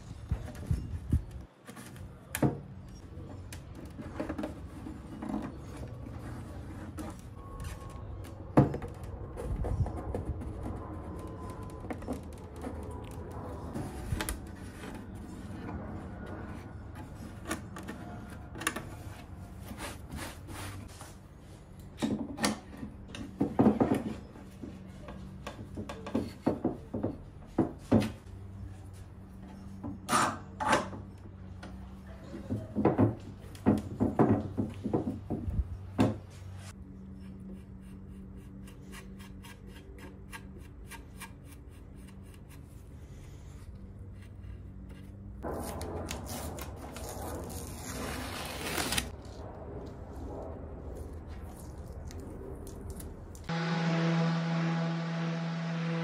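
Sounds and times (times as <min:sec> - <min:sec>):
steady low hum: 0:49.1 - 0:56.0.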